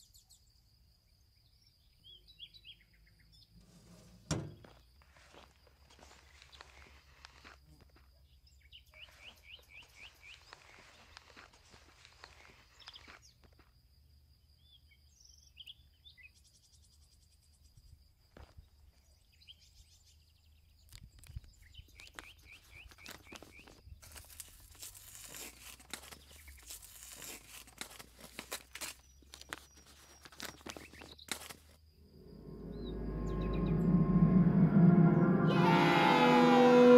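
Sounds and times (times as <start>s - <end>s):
envelope being torn open: 23.0s - 31.8s.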